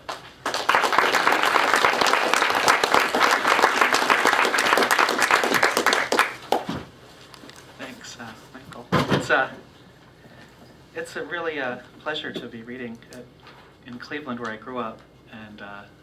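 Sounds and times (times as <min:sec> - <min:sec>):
audience applauding: 0:00.0 - 0:06.7.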